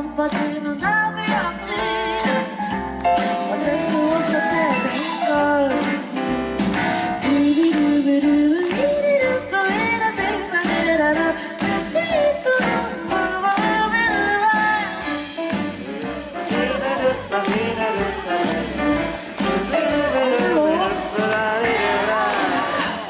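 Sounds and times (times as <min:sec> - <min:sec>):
drum kit: 0:00.0 - 0:23.0
electric bass: 0:12.7 - 0:23.0.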